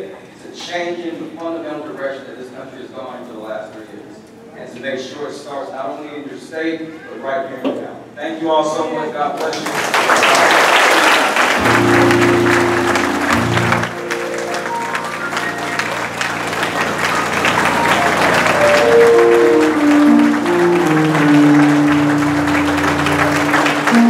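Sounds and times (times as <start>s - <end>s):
audience applauding: 9.4s - 24.0s
music with long held notes: 11.6s - 24.0s.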